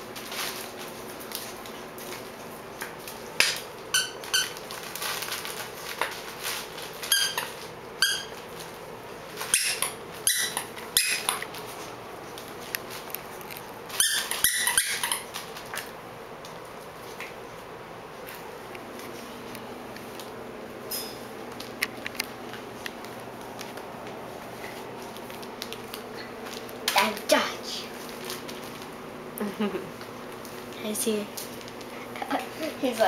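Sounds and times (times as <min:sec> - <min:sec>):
puppies squeaking and yipping: 0:07.0 - 0:08.4, 0:09.5 - 0:11.4, 0:13.9 - 0:15.3.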